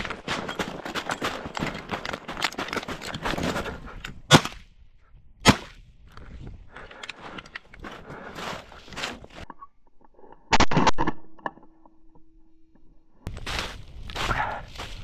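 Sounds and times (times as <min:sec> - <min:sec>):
footsteps crunching through snow: 0:00.0 - 0:03.9, 0:07.2 - 0:09.4, 0:13.3 - 0:15.0
loud shotgun shots: 0:05.4 - 0:05.8.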